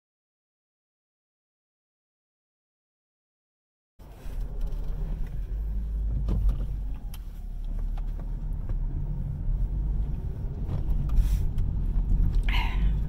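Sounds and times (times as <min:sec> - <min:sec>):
car cabin rumble: 0:04.0 - 0:13.0.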